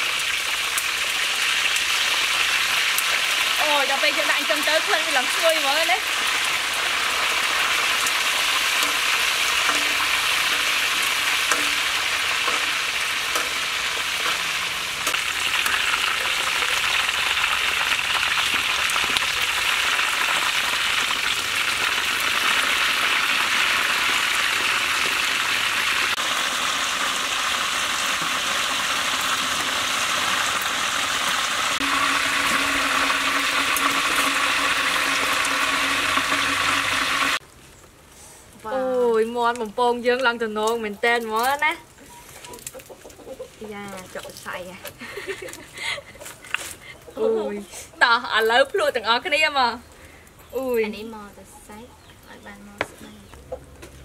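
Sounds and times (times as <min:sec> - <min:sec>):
chicken sizzling in hot oil: 0:00.0 - 0:37.4
metal spatula clicks and scrapes: 0:08.7 - 0:13.6, 0:14.2 - 0:15.8.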